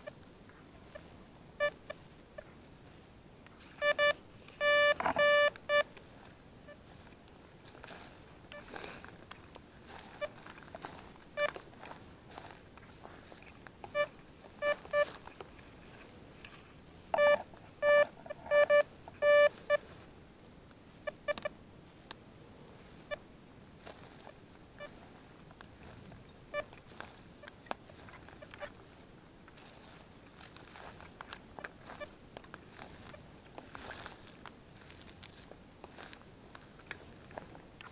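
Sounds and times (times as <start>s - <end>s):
metal detector low beeps: 0.9s - 2.5s, 3.8s - 5.9s, 8.5s - 8.7s, 10.0s - 10.4s, 11.3s - 11.6s, 13.9s - 15.2s, 17.1s - 20.0s, 21.0s - 21.6s, 31.6s - 33.2s.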